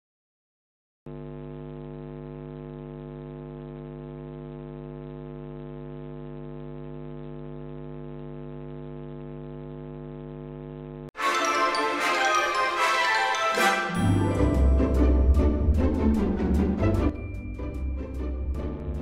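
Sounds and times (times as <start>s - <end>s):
buzzy electrical hum: 1.1s - 11.1s, 14.5s - 19.0s.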